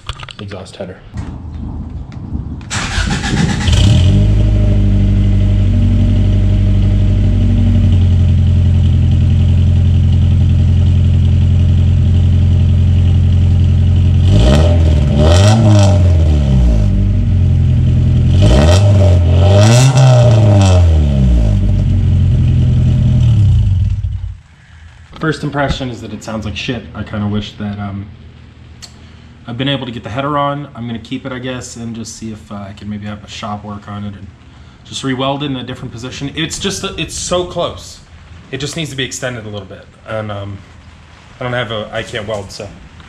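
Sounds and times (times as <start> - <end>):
car engine starting: 2.6 - 26.0
car engine idling and revving: 2.7 - 24.4.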